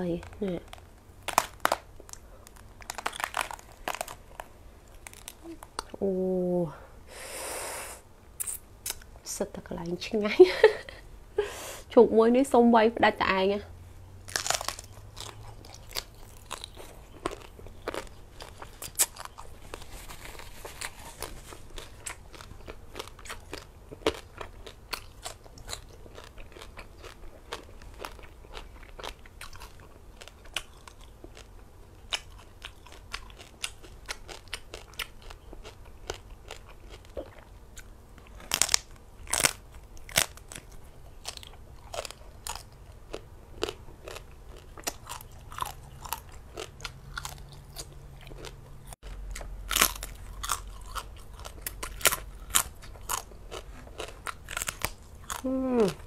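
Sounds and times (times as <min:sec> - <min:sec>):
crunchy pork being chewed: 0:00.0 - 0:06.0, 0:14.2 - 0:56.0.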